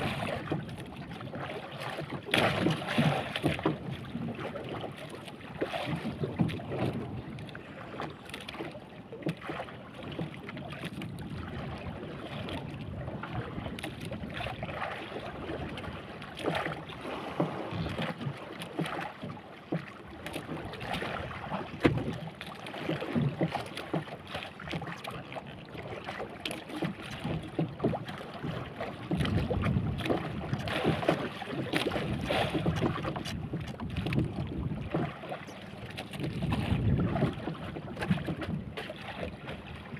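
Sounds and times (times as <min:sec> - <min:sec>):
water slapping boat hull: 0:00.0 - 0:39.9
wind buffeting microphone: 0:29.1 - 0:31.1, 0:32.1 - 0:38.8.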